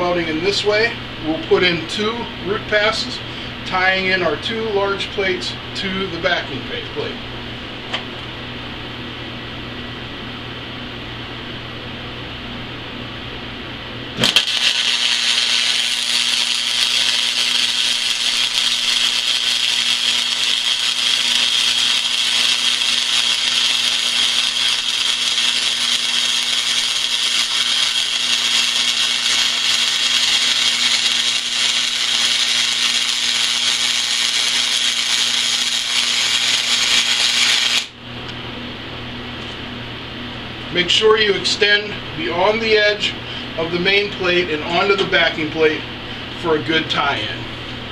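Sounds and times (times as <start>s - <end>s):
welding arc burning: 14.2s - 38.0s.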